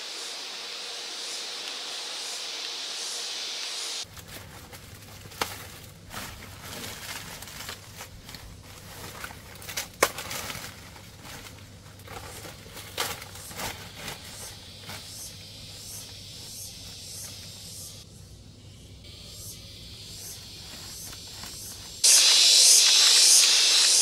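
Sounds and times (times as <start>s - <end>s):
crackling and rustling: 4.0s - 15.3s.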